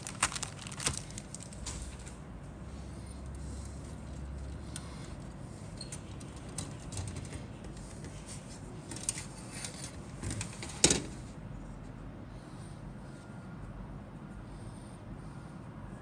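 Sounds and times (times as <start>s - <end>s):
plastic clicks and rustles: 0.0s - 2.1s.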